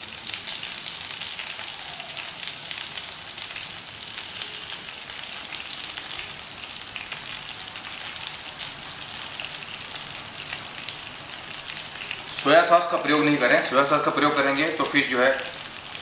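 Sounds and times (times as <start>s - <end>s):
fish sizzling in oil: 0.0s - 16.0s.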